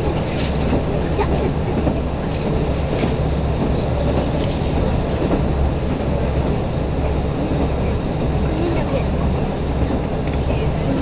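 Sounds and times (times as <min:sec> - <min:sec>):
rail rumble: 0:00.0 - 0:11.0
wheels clicking on track: 0:00.0 - 0:11.0.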